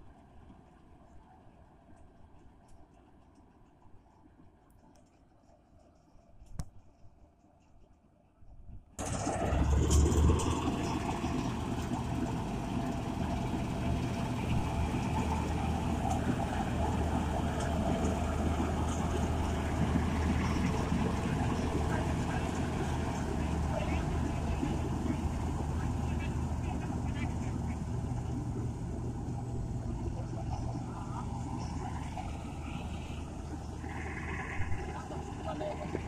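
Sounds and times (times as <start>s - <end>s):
combine harvester engine drone: 9.0s - 36.0s.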